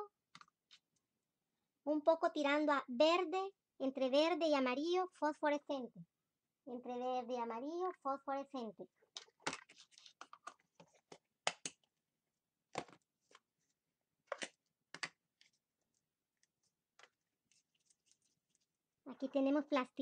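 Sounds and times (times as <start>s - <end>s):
plastic tubs clicking and tapping: 14.3s - 15.2s.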